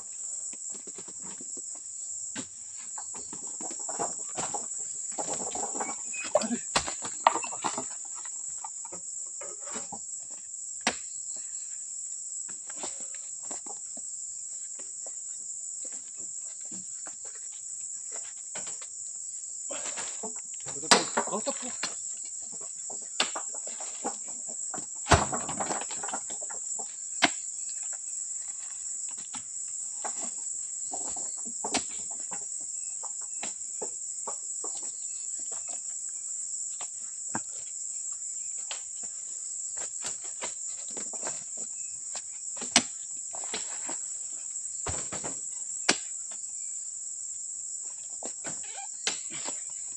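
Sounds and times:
fruit bunches thudding onto truck bed: 19.7 - 22.0, 24.8 - 26.4, 44.8 - 46.0.

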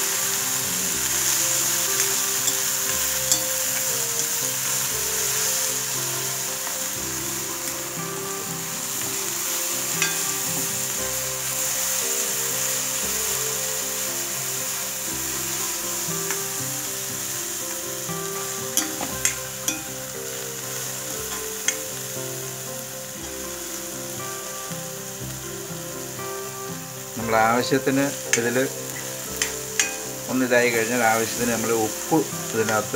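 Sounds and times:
vegetables sizzling in hot oil: 0.0 - 32.9
spatula clinking against pan: 2.0 - 4.4, 10.0 - 10.7, 18.8 - 20.0, 28.3 - 30.1.

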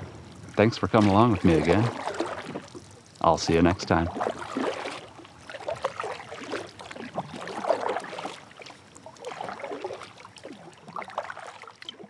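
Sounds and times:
kayak paddle strokes in water: 0.0 - 12.0
water dripping: 0.0 - 12.0.

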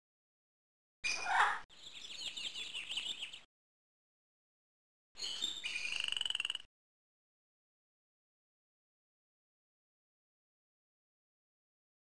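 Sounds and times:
high chirping chatter: 1.1 - 3.5.

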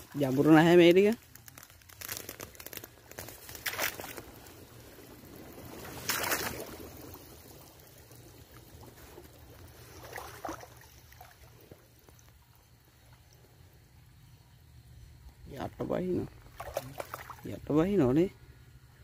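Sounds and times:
river water sloshing and splashing: 1.5 - 13.4, 16.4 - 17.6.

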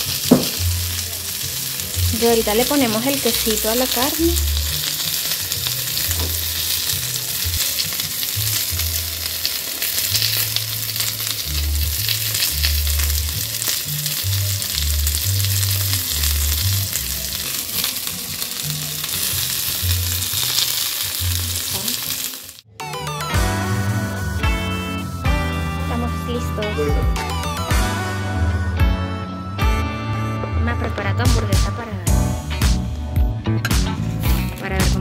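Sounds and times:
patties sizzling in oil: 0.0 - 22.7.

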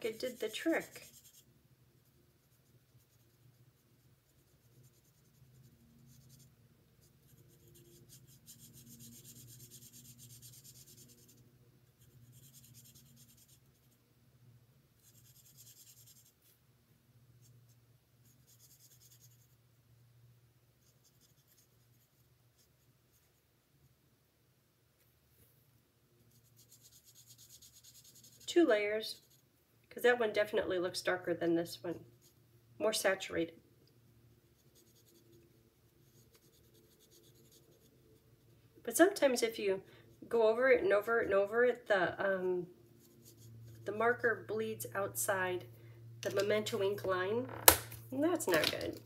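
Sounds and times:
marker scratching on card: 0.0 - 11.4, 12.0 - 13.9, 15.0 - 16.5, 17.4 - 19.6, 20.8 - 23.4, 26.3 - 28.5, 29.1 - 29.4, 34.6 - 35.3, 36.0 - 38.0, 43.0 - 43.8
low steady hum: 0.0 - 49.0.

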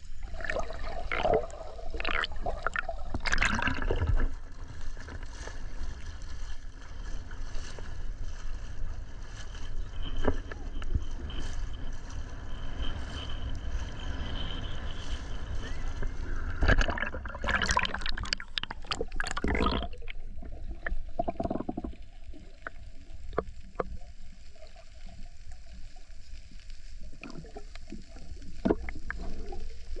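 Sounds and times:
water splashing and churning: 0.0 - 7.7, 16.4 - 30.0
muffled underwater rumble: 0.0 - 30.0.

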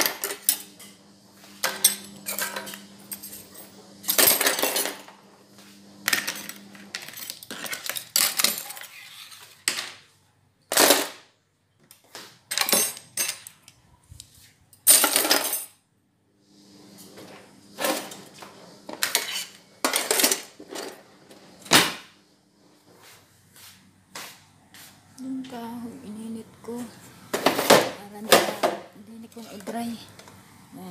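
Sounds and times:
dishes and utensils clattering: 0.0 - 1.0, 1.6 - 5.1, 6.1 - 10.0, 14.9 - 15.8, 17.8 - 21.0, 27.3 - 28.9.

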